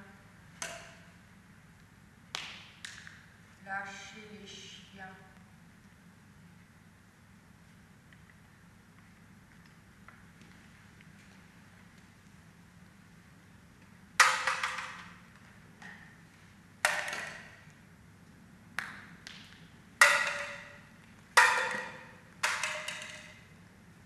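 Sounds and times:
racket striking shuttlecocks: 0:00.6 - 0:01.2, 0:14.2 - 0:15.2, 0:16.8 - 0:17.7, 0:18.8 - 0:23.5.

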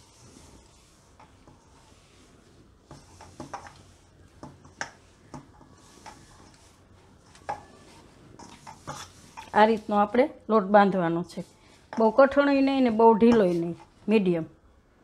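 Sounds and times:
hands kneading dough: 0:00.0 - 0:10.2.

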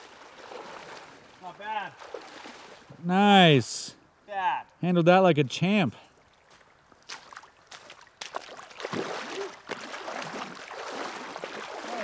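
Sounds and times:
water splashing from wading: 0:00.0 - 0:02.9, 0:06.1 - 0:12.0.

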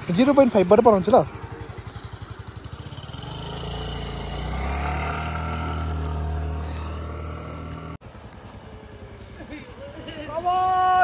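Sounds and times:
small motorbike engine revving: 0:00.2 - 0:08.0.

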